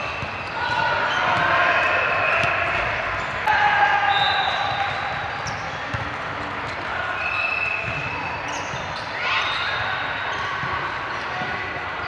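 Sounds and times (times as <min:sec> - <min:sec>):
players' voices: 0:00.0 - 0:12.0
shoe squeaks: 0:07.2 - 0:10.6.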